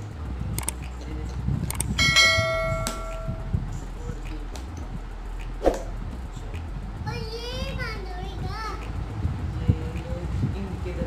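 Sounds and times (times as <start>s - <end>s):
quick clicks: 0.6s - 1.0s, 1.6s - 2.0s
bright bell chime: 2.0s - 3.5s.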